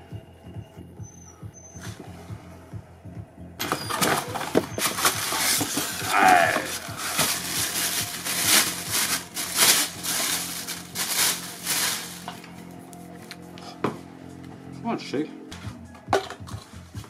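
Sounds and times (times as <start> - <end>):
short falling squeak: 1.0 - 2.0, 3.6 - 5.2
plastic wrapping crinkling: 3.6 - 12.5.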